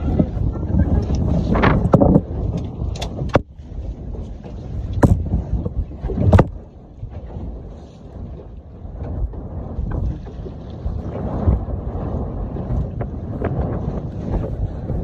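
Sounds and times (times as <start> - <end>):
wind and water rushing: 0.0 - 15.0
sharp knocks on boat: 4.9 - 5.4.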